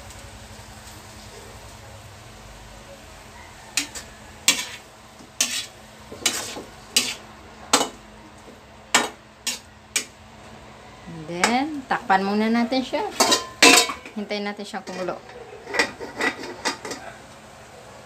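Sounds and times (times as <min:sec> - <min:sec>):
metal ladle clanking against wok: 0:13.1 - 0:14.2.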